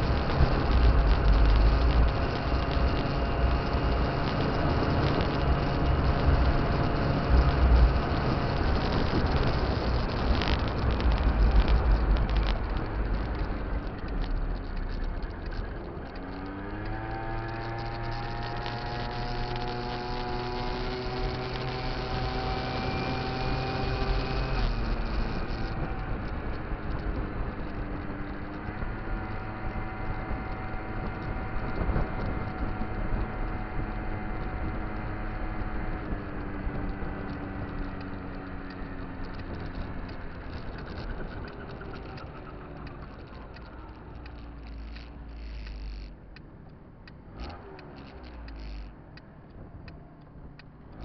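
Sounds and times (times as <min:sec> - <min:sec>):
scooter two-stroke engine running: 0:00.0 - 0:46.4, 0:47.3 - 0:49.2
wind rumble on microphone: 0:00.0 - 0:51.0.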